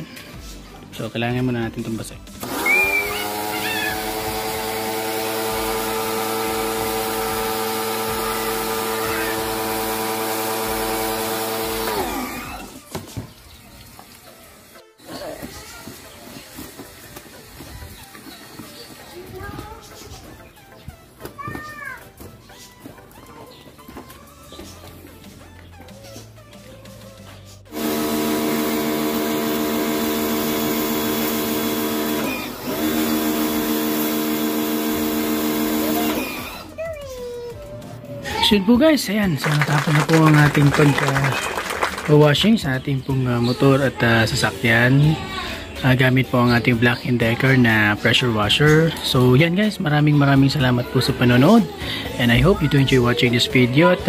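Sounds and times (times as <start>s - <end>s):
pressure washer motor: 2.3s - 13.0s, 27.7s - 36.8s
water spray hissing: 27.7s - 36.6s.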